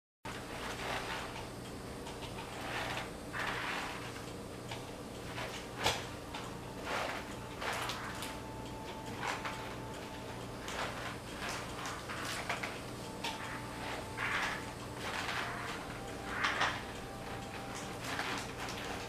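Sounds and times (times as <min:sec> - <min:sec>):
wet mop swishing on tile floor: 0:00.3 - 0:01.4, 0:02.4 - 0:04.2, 0:05.2 - 0:08.4, 0:10.6 - 0:19.0
steady low hum: 0:00.3 - 0:19.0.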